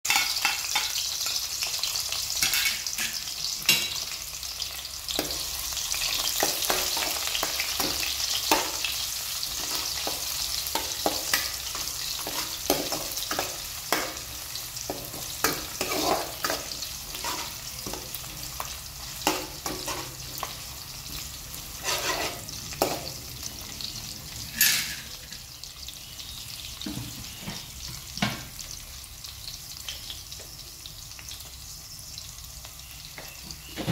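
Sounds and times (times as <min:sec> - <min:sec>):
spoon scraping and clinking on pan: 0:00.1 - 0:01.4, 0:02.4 - 0:04.0, 0:14.9 - 0:18.1, 0:21.8 - 0:23.1, 0:24.5 - 0:25.2
onions sizzling in hot oil: 0:00.1 - 0:33.9.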